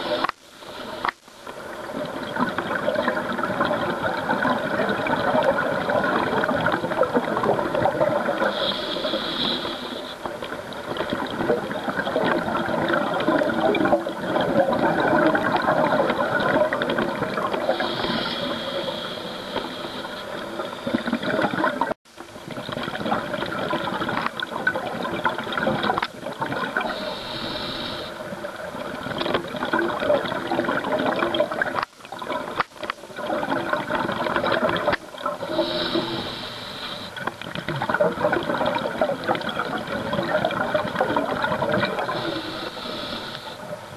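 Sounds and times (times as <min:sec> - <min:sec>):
hissing regulator inhale: 0:08.4 - 0:10.3, 0:17.6 - 0:20.9, 0:26.8 - 0:28.3, 0:35.4 - 0:37.3, 0:42.0 - 0:43.8
bubbling exhaled air: 0:10.9 - 0:43.9.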